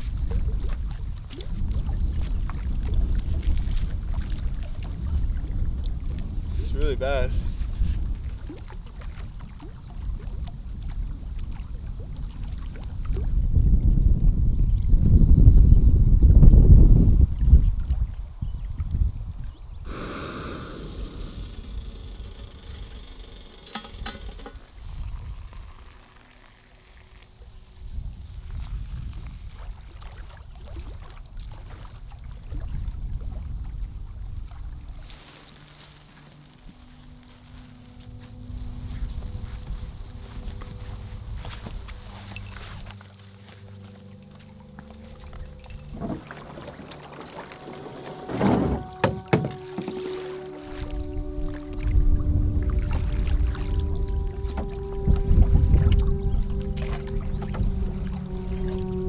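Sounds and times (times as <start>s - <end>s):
wind buffeting microphone: 0.0s - 26.0s, 27.5s - 35.1s, 38.3s - 43.0s, 50.8s - 59.0s.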